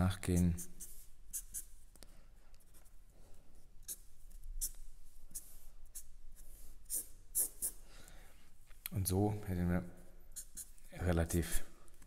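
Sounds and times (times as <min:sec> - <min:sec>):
marker pen scratching paper: 0:00.2 - 0:01.8, 0:03.6 - 0:07.8, 0:10.3 - 0:10.9.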